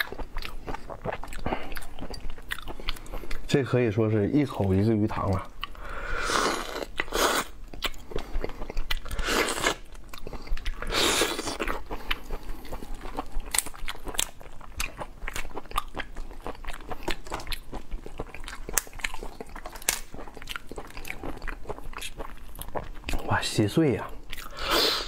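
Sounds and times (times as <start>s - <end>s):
chewing: 0.0s - 3.5s, 4.4s - 5.8s, 6.5s - 23.3s, 24.2s - 25.0s
shells cracking and snapping: 13.5s - 14.4s, 18.6s - 20.2s.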